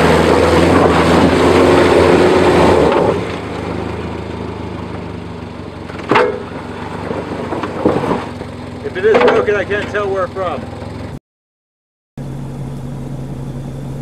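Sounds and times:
car engine revving: 0:00.0 - 0:11.2.

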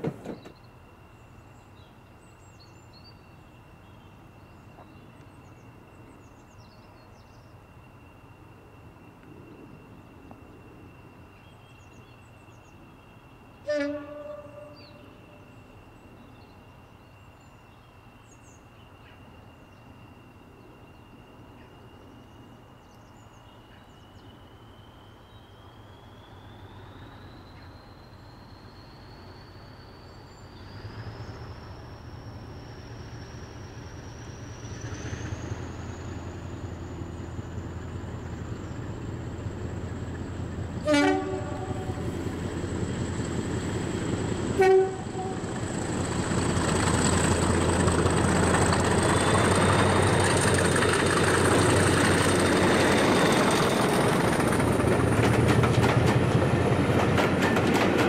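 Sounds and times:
diesel locomotive engine rumble: 0:00.0 - 0:58.0
locomotive horn blasts: 0:13.6 - 0:15.2, 0:40.8 - 0:42.3, 0:44.5 - 0:45.6.

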